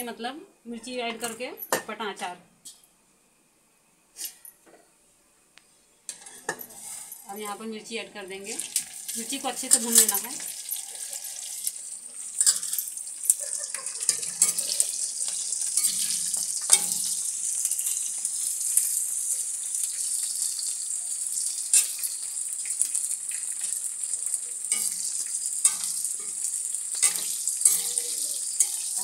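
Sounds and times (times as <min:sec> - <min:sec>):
metal spoon scraping pan: 0:06.1 - 0:07.6, 0:08.6 - 0:11.7, 0:14.0 - 0:18.1, 0:24.7 - 0:29.0
chillies sizzling in hot oil: 0:06.1 - 0:29.0.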